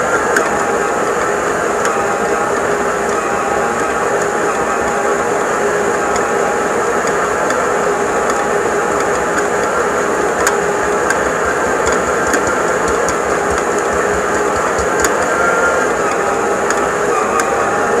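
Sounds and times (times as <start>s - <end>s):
stand mixer motor whining: 0.0s - 18.0s.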